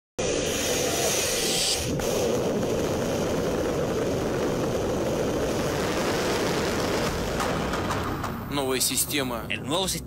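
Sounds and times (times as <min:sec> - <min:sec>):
bright hiss: 0:00.2 - 0:07.4
rocket motor roaring: 0:00.2 - 0:08.5.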